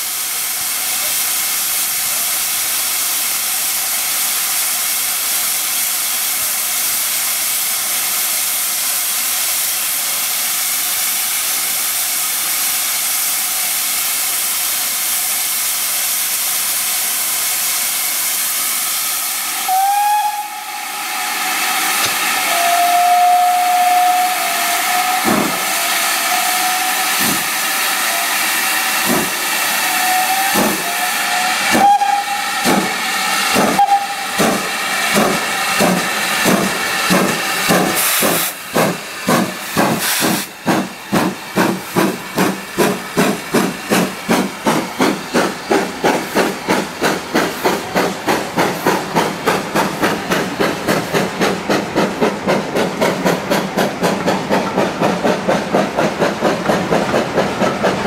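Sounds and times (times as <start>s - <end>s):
steam hissing: 0.0s - 58.0s
steam locomotive whistle: 19.0s - 35.7s.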